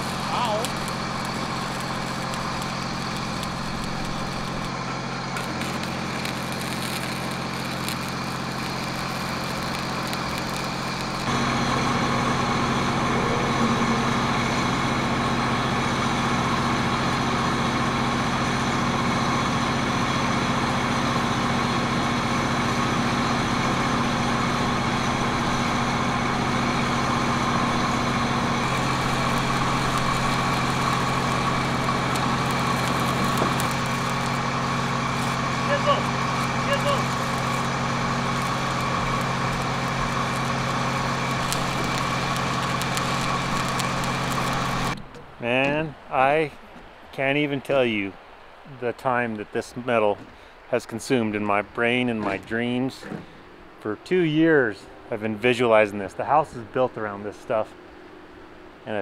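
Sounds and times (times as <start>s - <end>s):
engine idling: 0.0s - 45.6s.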